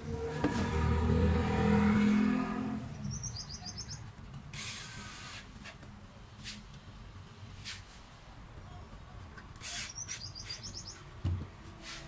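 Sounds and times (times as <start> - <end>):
bird chirping: 2.8 - 4.1, 9.7 - 11.1
short hissing rush: 4.5 - 5.5.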